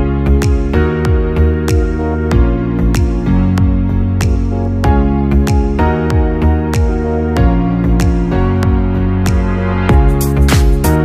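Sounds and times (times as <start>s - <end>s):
electronic music with beat: 0.0s - 11.0s.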